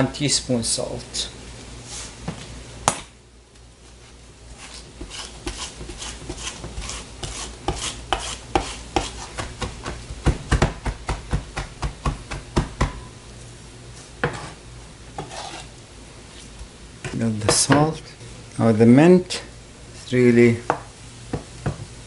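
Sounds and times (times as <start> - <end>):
knife scraping herbs on board: 4.6 - 9.7, 14.2 - 14.6, 15.2 - 15.7
knife chopping on cutting board: 4.7 - 13.1, 14.2 - 14.6.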